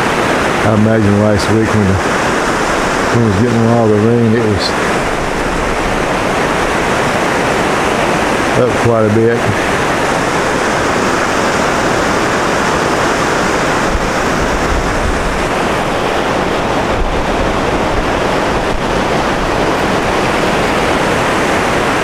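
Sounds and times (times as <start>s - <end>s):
river rushing over rapids: 0.0s - 22.0s.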